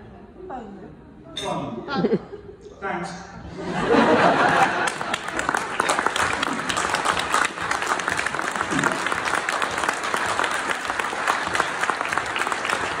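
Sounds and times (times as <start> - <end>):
audience clapping: 4.0 - 13.0.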